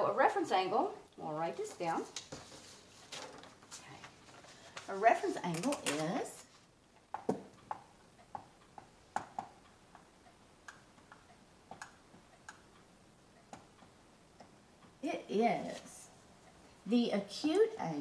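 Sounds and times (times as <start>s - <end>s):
marker tapping on whiteboard: 7.1s - 10.1s.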